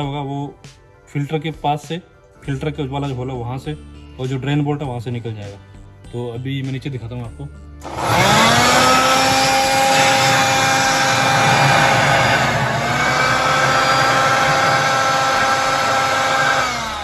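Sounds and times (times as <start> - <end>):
electric air blower whining: 7.8 - 17.0.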